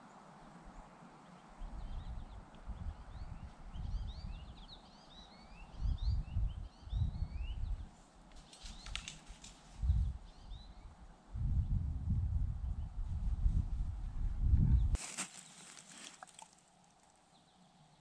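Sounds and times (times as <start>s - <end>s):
songbirds chirping: 0.0s - 11.9s, 14.8s - 18.0s
wind buffeting microphone: 1.6s - 4.7s, 5.7s - 7.9s, 9.8s - 15.0s
sharp clicking bird notes: 8.3s - 9.6s.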